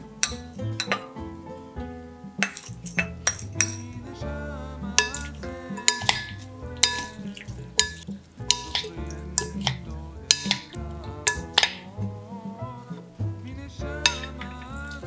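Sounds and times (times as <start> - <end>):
background music: 0.0 - 15.0
wooden spoons knocking glass bowl: 0.2 - 1.3, 2.4 - 4.1, 4.8 - 11.9, 13.8 - 15.0.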